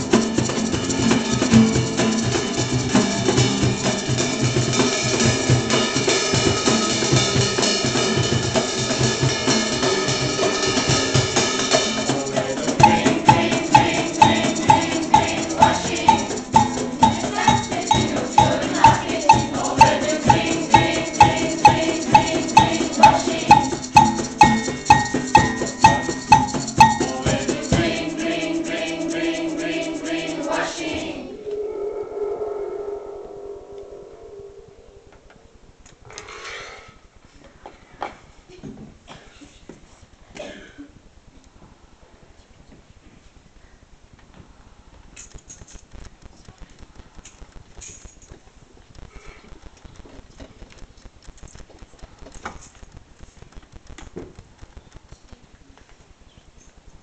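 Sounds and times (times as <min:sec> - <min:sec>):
low drum beat: 0:00.0 - 0:31.3
ensemble held notes: 0:12.0 - 0:35.8
pitched percussion knock: 0:12.6 - 0:28.4.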